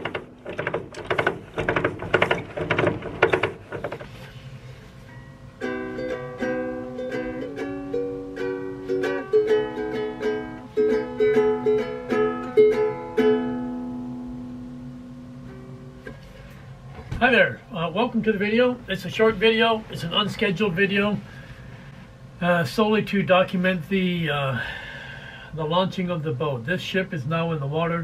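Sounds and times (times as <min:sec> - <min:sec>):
ukulele picked tune: 0:05.1 - 0:16.2
ukulele strumming chords: 0:05.1 - 0:16.4.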